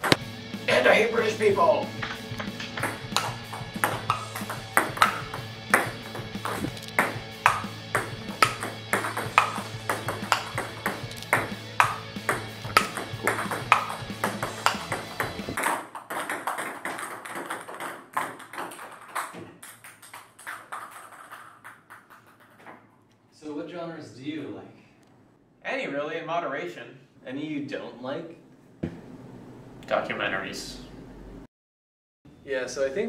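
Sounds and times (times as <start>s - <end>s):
background music: 0.0s - 15.6s
table tennis ball clicking: 2.4s - 22.7s.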